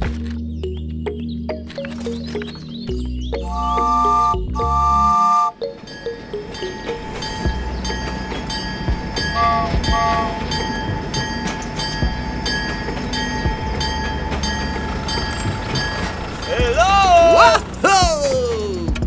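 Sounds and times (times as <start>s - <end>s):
toy train whistle toots: 3.4s - 5.6s, 9.2s - 10.9s
toy train chugging and clicking: 3.4s - 18.3s.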